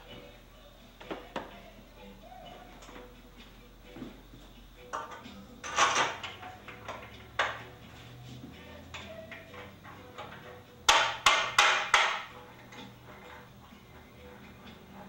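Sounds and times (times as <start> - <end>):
knocks from handling parts: 9.9 - 12.9.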